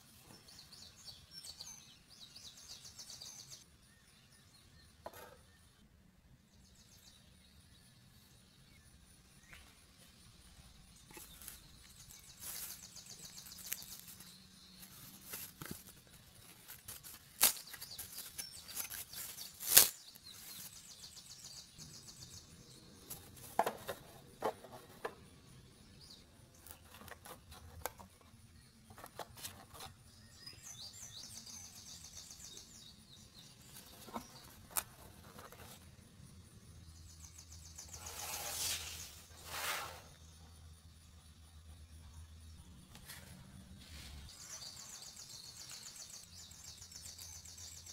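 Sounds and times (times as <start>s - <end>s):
card pieces rustling and scraping: 11.1s - 20.7s.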